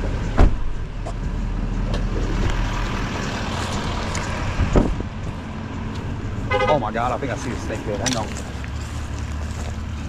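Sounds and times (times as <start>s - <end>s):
road and tyre noise: 0.0s - 10.0s
wind buffeting microphone: 2.0s - 6.4s.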